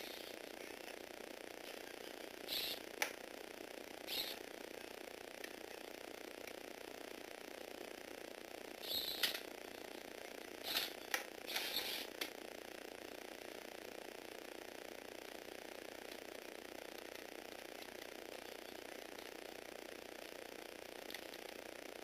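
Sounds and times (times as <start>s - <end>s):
motor driving plastic gears whirring: 10.6s - 12.4s.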